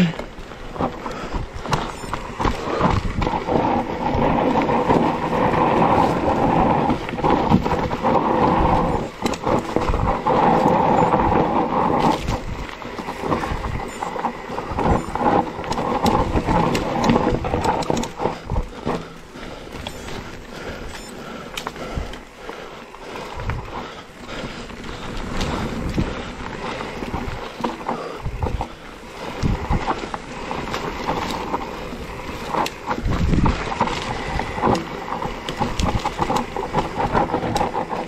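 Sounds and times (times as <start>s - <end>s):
bike knocks and rattles: 0.0s - 22.4s, 23.2s - 38.0s
tyres rumbling on dirt and stones: 0.0s - 38.0s
wind rumble: 0.0s - 38.0s.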